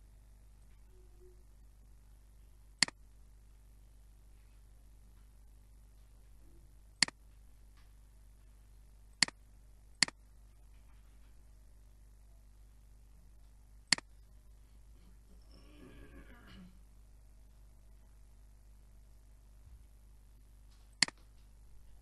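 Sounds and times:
faint hum: 0.0s - 22.0s
computer mouse clicks: 13.9s - 14.1s, 20.9s - 21.3s.

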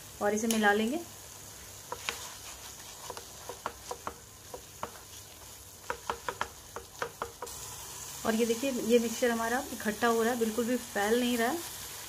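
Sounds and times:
faint sizzle: 0.0s - 12.0s
spatula scraping a pan: 1.8s - 7.6s.

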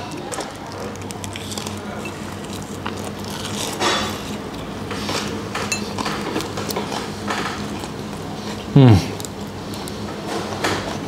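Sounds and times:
person chewing food: 0.0s - 10.2s
dishes clinking: 5.5s - 7.7s.

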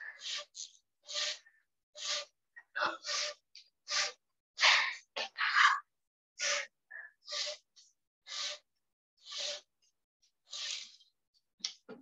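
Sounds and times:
plastic tape scraping: 0.0s - 2.3s, 6.4s - 9.7s, 10.5s - 11.1s.

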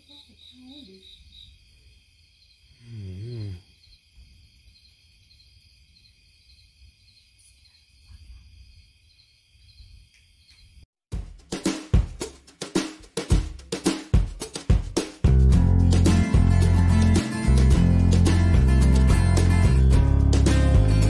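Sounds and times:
crickets chirping: 0.0s - 10.9s.

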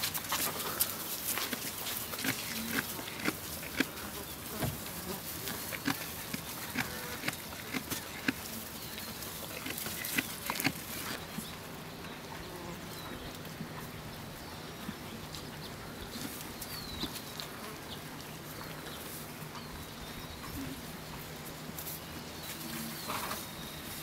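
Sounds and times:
animal munching: 0.0s - 11.5s.

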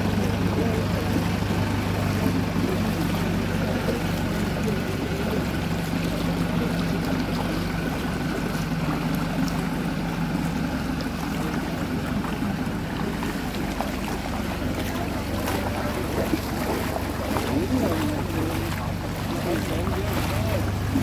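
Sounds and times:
feet sloshing in water: 0.0s - 21.0s
vehicle engine humming: 0.0s - 21.0s.

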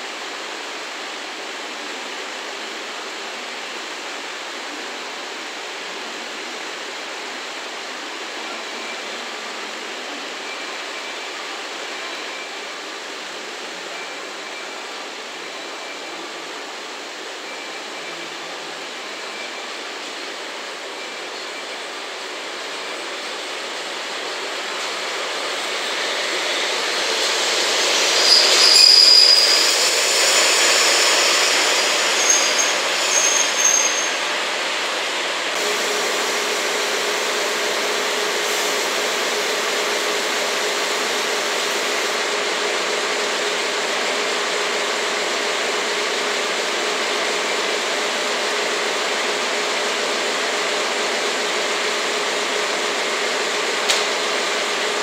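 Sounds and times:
locomotive wheels and brakes squealing: 17.4s - 49.6s
click: 53.9s - 54.1s.

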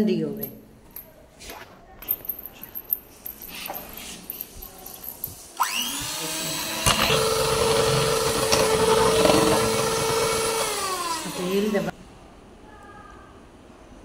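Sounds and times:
electric hand mixer whirring: 5.6s - 11.9s.

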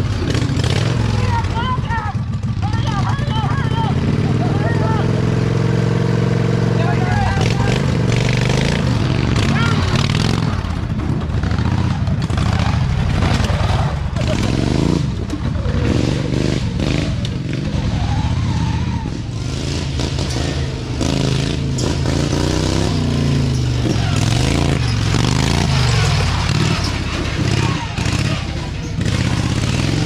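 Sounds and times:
lawn mower engines revving: 0.0s - 30.0s.

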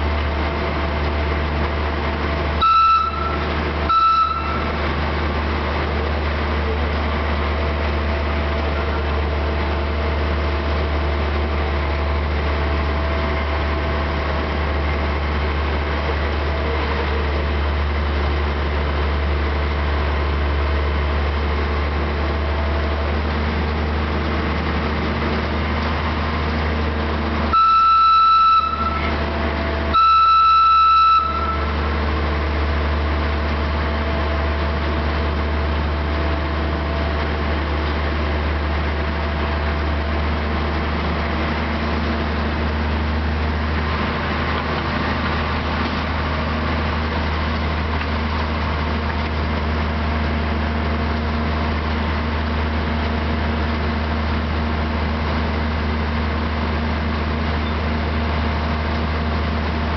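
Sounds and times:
diesel engine running: 0.0s - 59.9s
locomotive horn blast: 2.6s - 5.1s, 27.5s - 32.4s.

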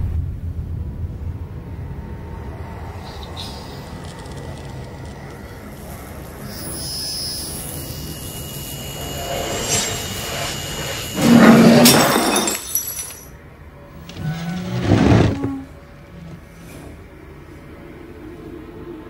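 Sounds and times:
glass shattering crash: 9.3s - 13.4s.

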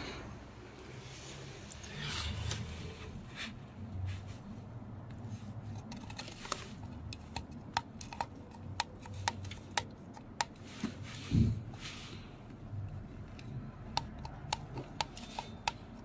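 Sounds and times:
fingernail clicking on metal: 7.0s - 10.6s, 13.3s - 16.0s.

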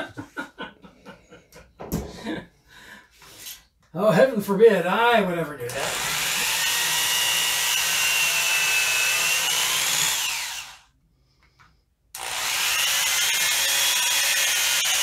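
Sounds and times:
electric drill boring into wood: 5.7s - 10.9s, 12.2s - 15.0s.

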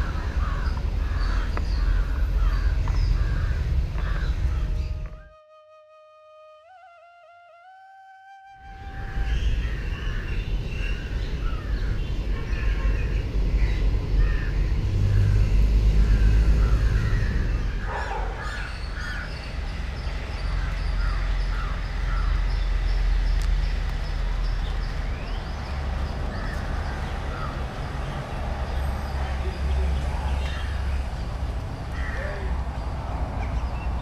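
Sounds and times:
crows cawing: 0.0s - 5.2s, 16.0s - 19.4s, 20.4s - 22.3s, 26.3s - 27.6s, 31.9s - 32.6s
steady low rumble: 0.0s - 5.3s.

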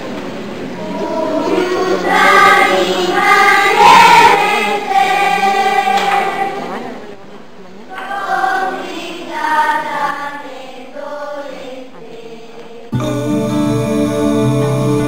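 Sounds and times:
choir singing: 0.8s - 7.0s, 7.9s - 15.0s
music with strong low notes: 13.0s - 15.0s.

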